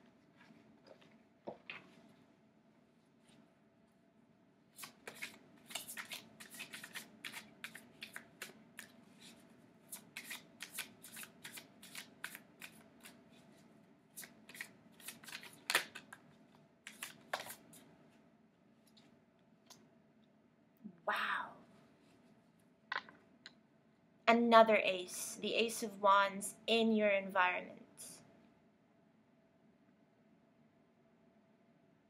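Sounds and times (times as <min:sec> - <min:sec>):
cards shuffling with clicks: 0:04.8 - 0:13.4, 0:14.2 - 0:16.2, 0:16.9 - 0:17.8.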